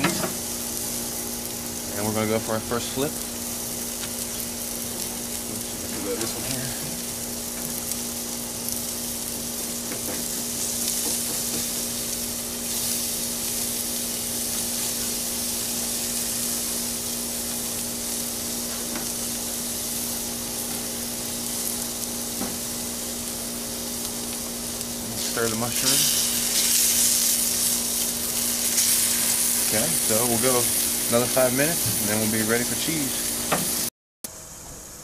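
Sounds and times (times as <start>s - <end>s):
burger patties sizzling on grill: 0.0s - 35.0s
steady low hum: 0.0s - 35.0s.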